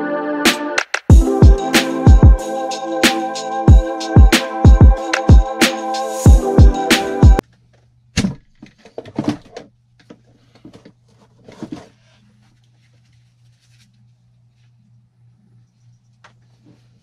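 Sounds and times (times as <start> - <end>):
faint low hum: 10.0 - 17.0.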